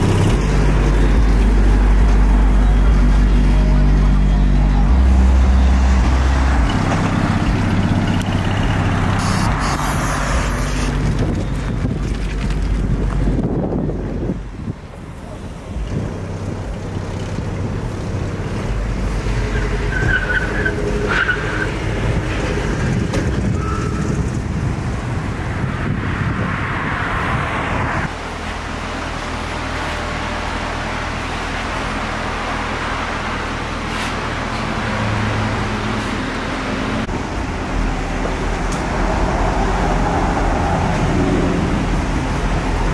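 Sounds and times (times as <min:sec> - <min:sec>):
cars driving past: 0:00.0 - 0:42.9.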